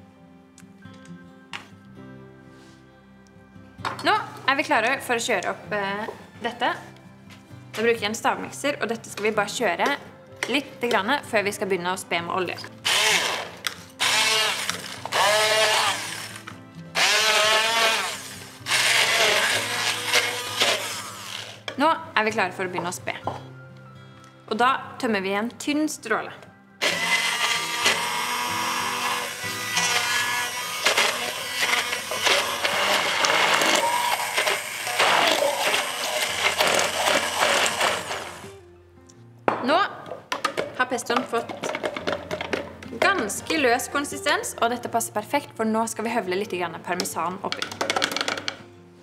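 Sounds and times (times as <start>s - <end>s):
soft background music: 0.0s - 49.0s
stick blender whining: 12.8s - 21.7s, 26.8s - 38.4s.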